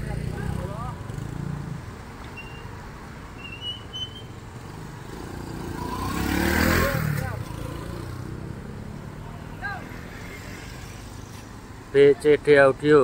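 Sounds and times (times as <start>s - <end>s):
vehicles passing: 0.0s - 13.0s
vehicle accelerating past: 4.5s - 11.5s.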